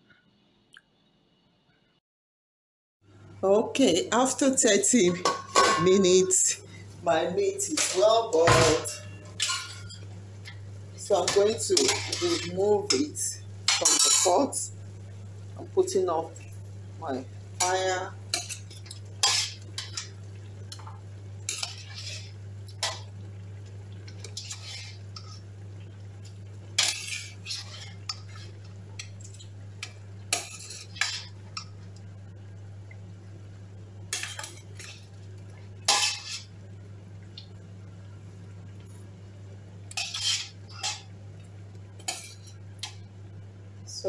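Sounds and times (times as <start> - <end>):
steady low hum: 3.1 - 44.0
metal spoon scraping a pot: 11.3 - 13.0, 21.5 - 23.0, 24.1 - 25.4, 26.8 - 31.4, 35.9 - 36.5, 39.9 - 41.1.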